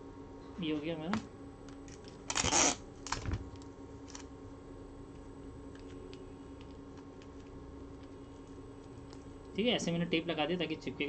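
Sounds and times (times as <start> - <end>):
tape ripping off roll: 2.3 - 3.4.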